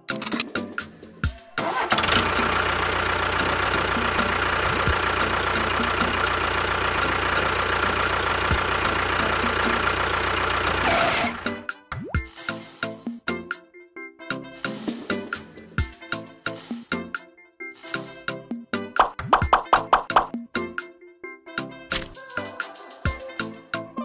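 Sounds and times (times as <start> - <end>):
engine running: 1.5 - 11.6.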